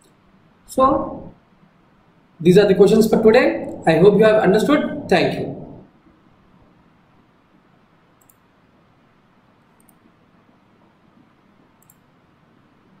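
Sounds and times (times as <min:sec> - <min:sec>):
faint computer mouse clicks: 0:08.2 - 0:08.4, 0:09.7 - 0:10.1, 0:11.8 - 0:12.1.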